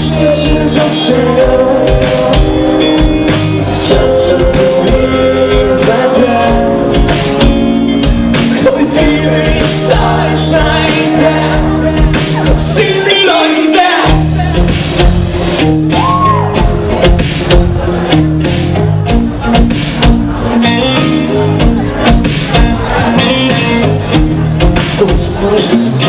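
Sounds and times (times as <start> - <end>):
person singing: 0.0 - 7.7, 8.3 - 14.7, 24.6 - 26.0
bass guitar: 0.0 - 26.0
drums: 0.0 - 26.0
electric guitar: 0.0 - 26.0.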